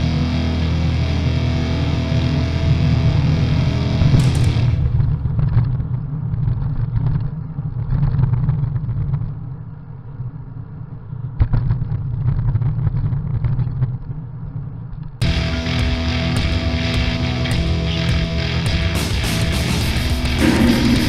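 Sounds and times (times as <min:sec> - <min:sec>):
wind rumbling over microphone: 0:04.2 - 0:15.2.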